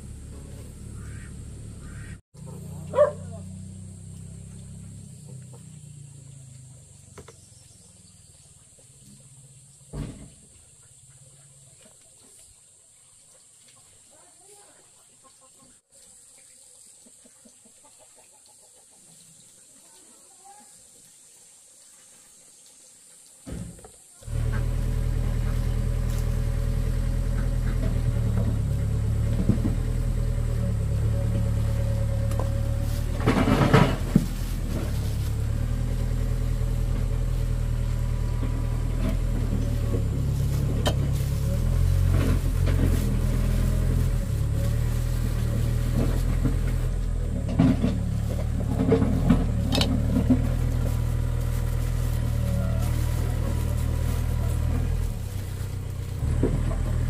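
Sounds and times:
low engine drone: 0.0s - 11.8s, 24.2s - 57.0s.

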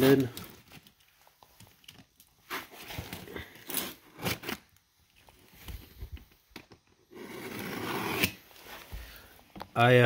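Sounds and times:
knife slicing tape and cardboard: 7.1s - 8.5s.

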